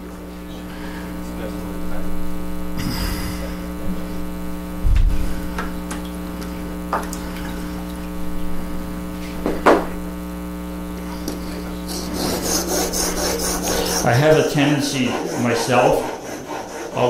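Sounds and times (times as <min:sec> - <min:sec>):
electrical hum: 0:00.0 - 0:17.0
chisel rubbing on sharpening stone: 0:11.9 - 0:17.0.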